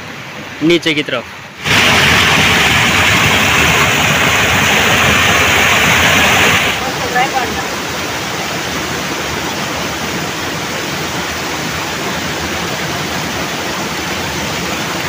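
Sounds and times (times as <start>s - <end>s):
water pouring over weir: 1.6s - 6.9s.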